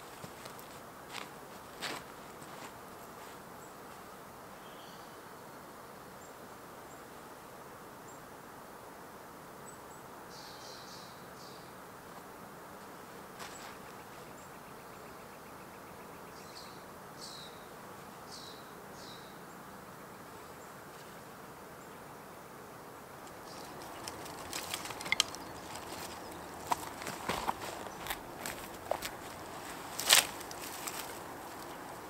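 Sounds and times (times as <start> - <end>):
dry brush crackling and snapping: 0.0 - 3.4, 23.2 - 32.0
steady outdoor hiss: 0.0 - 32.0.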